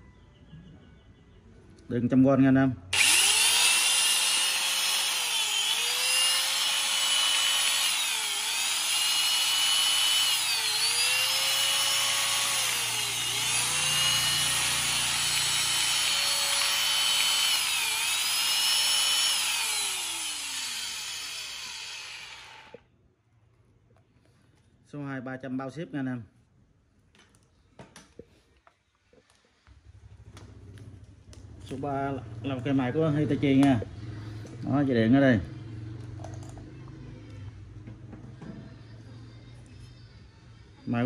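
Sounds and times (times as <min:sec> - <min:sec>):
angle grinder motor whine: 0:03.0 - 0:22.8.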